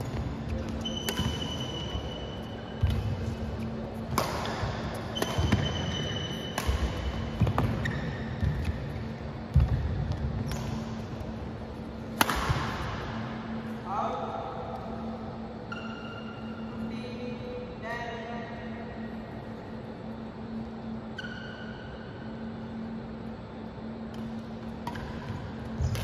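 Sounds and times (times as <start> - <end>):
low hum: 0.0 - 26.0
rackets striking shuttlecock: 0.1 - 2.2, 2.8 - 8.8, 12.1 - 13.2, 24.1 - 26.0.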